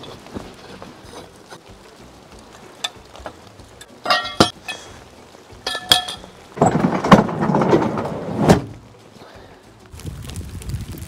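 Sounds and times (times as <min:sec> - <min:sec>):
metal rattling scrape: 0:00.0 - 0:01.7, 0:05.6 - 0:08.9
metal bar clanking on steel: 0:03.8 - 0:04.9, 0:05.6 - 0:08.6.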